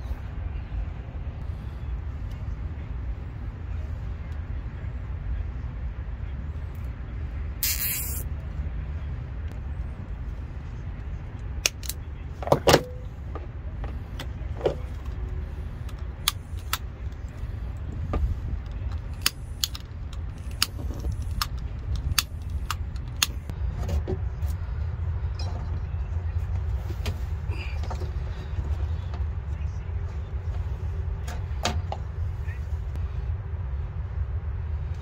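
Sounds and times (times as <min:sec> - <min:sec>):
low background rumble: 0:00.0 - 0:35.0
clicks of wires and connectors: 0:11.6 - 0:12.9.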